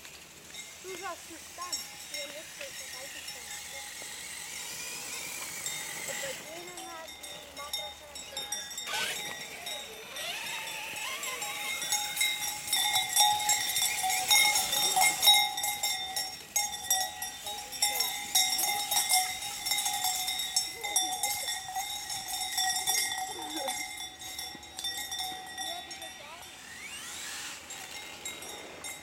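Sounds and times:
cowbells clanking: 0.1 - 29.0
electric motor whine: 2.5 - 7.5, 8.4 - 12.7, 26.2 - 29.0.

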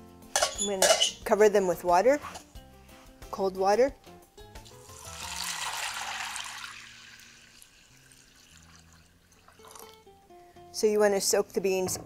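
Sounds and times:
water pouring and splashing: 4.7 - 10.0.

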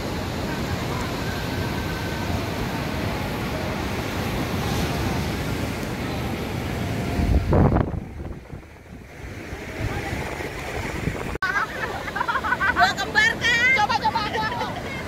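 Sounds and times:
surf washing on beach: 0.0 - 15.0
wind on microphone: 6.8 - 11.4.

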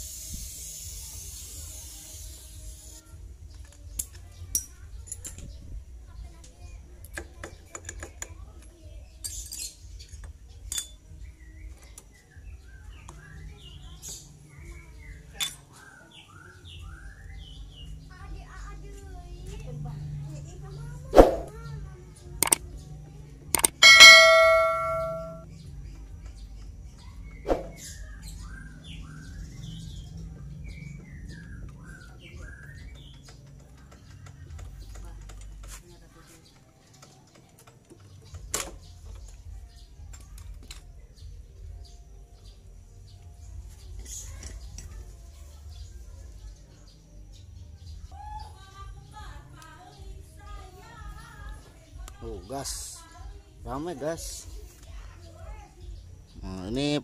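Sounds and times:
bird chirping: 23.6 - 25.4
metal clinks and knocks: 23.6 - 25.4.

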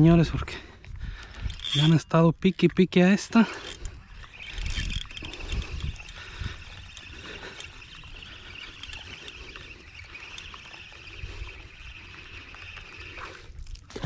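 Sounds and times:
distant birds chattering: 3.4 - 13.6.

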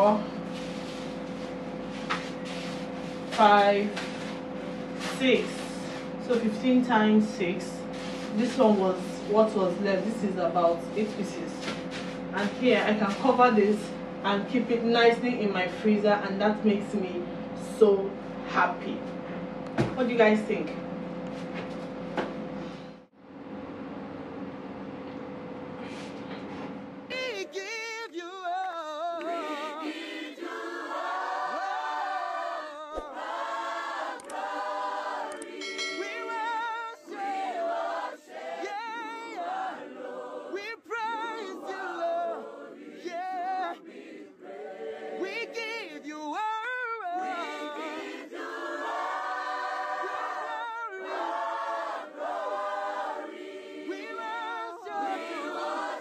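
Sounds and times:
choir singing: 29.2 - 46.4, 47.0 - 56.0.

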